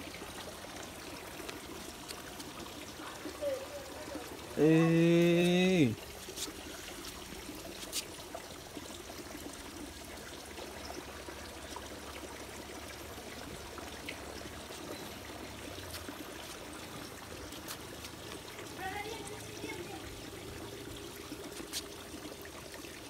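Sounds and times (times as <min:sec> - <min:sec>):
water trickling in a pond: 0:00.0 - 0:23.0.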